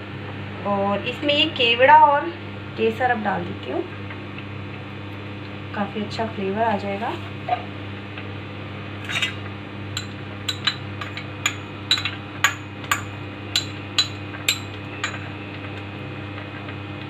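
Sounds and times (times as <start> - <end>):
steady low hum: 0.0 - 17.0
spoon clinking on ceramic bowl: 10.0 - 15.3.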